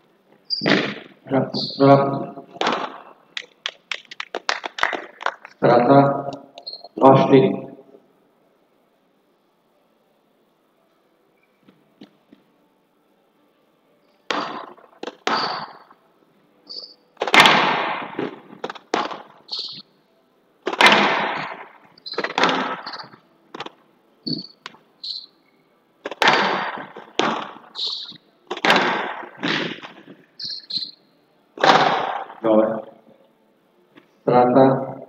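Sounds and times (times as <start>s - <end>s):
court shoes squeaking: 0.4s - 2.0s, 6.4s - 7.0s, 14.3s - 15.9s, 16.7s - 17.0s, 18.2s - 19.9s, 20.7s - 28.8s, 29.4s - 31.0s
squash ball hits: 0.6s - 1.2s, 2.5s - 3.1s, 14.3s - 15.9s, 17.2s - 19.4s, 20.6s - 23.8s, 26.0s - 27.8s, 28.5s - 30.3s, 31.6s - 32.4s.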